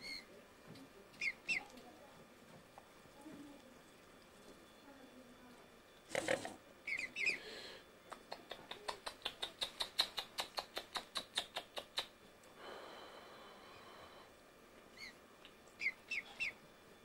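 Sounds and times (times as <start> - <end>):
cygnets peeping: 0.0 - 0.3, 1.1 - 1.8, 6.1 - 12.1, 14.9 - 16.6.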